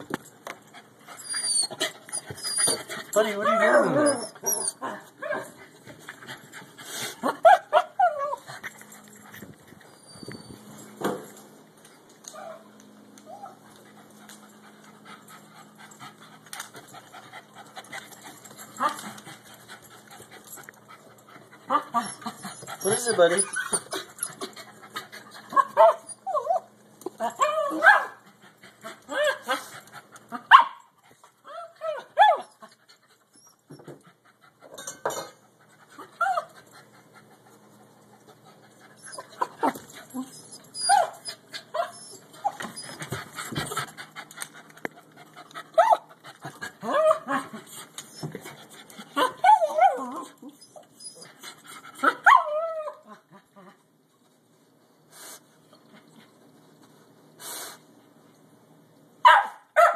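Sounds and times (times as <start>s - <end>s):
small dog whining and yipping: 1.1s - 5.5s, 7.4s - 8.5s, 9.9s - 10.8s, 21.7s - 24.4s, 25.6s - 26.7s, 39.0s - 43.1s, 45.8s - 46.1s, 49.2s - 51.4s, 52.1s - 53.2s
dog panting: 5.5s - 7.4s, 13.7s - 25.5s, 32.6s - 46.9s.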